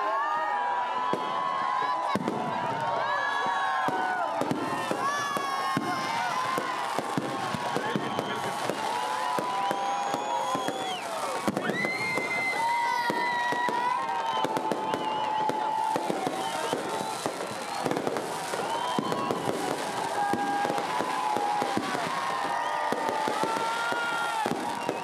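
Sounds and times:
fireworks crackling and popping: 0:00.6 - 0:25.0
fireworks whistling: 0:03.5 - 0:25.0.

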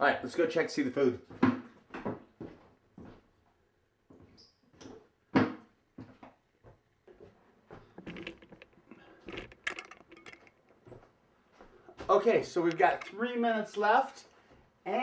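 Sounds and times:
small knocks: 0:07.1 - 0:11.1.

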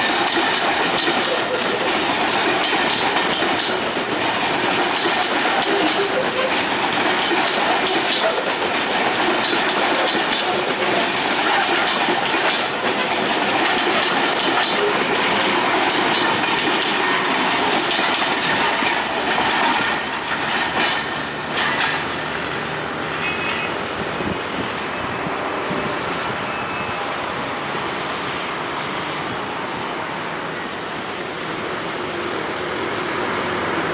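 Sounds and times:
train wheels clattering over rail joints: 0:00.0 - 0:26.4.

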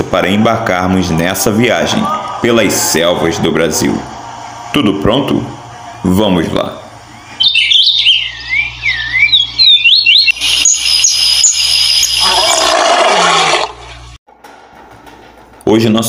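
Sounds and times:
steady low hum: 0:00.0 - 0:09.6
whistled bird calls: 0:07.1 - 0:12.7.

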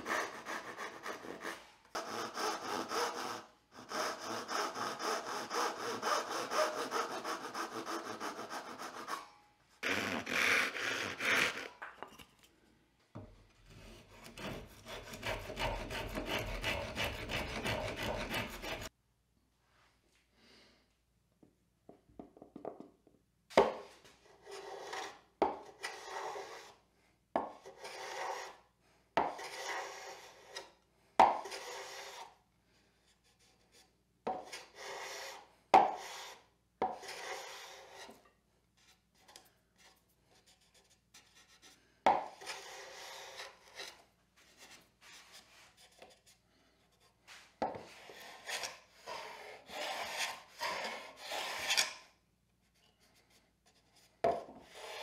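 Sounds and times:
hand plane cutting wood: 0:00.0 - 0:11.8, 0:13.8 - 0:18.9, 0:27.7 - 0:28.6, 0:29.3 - 0:30.7, 0:42.3 - 0:44.0, 0:48.0 - 0:52.0.

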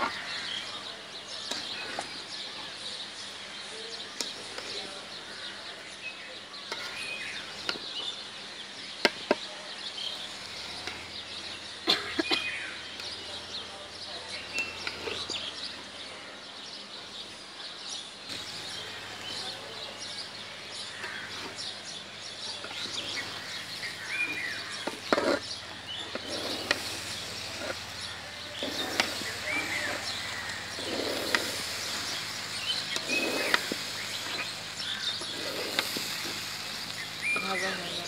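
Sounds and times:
birds chirping: 0:00.0 - 0:38.0
metal spatula scraping a pan: 0:06.6 - 0:07.9, 0:10.1 - 0:12.1, 0:12.8 - 0:15.9, 0:20.1 - 0:38.0.

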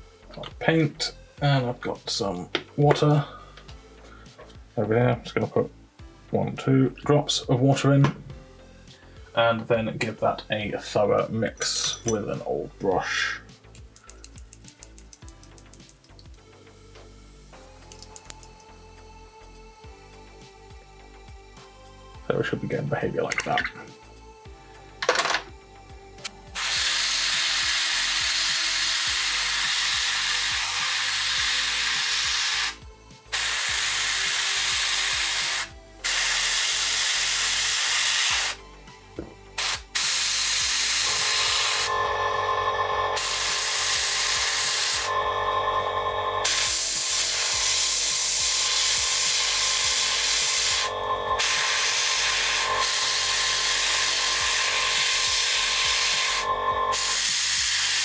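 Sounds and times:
airbrush spraying hiss: 0:26.5 - 0:38.6, 0:39.6 - 0:42.5, 0:43.1 - 0:58.0.

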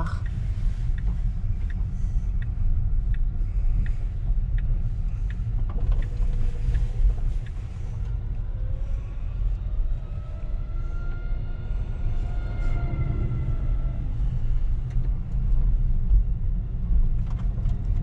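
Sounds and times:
turn indicator ticking: 0:00.0 - 0:08.1
road and tyre rumble: 0:00.0 - 0:18.0.

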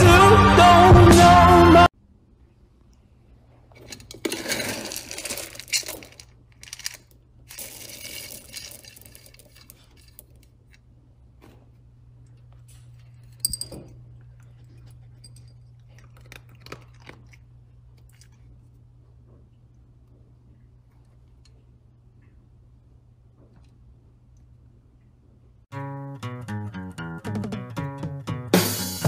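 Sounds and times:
low steady hum: 0:02.0 - 0:25.7
kibble rattling in plastic scoop: 0:04.1 - 0:09.9
sharp clink: 0:13.4 - 0:14.0.

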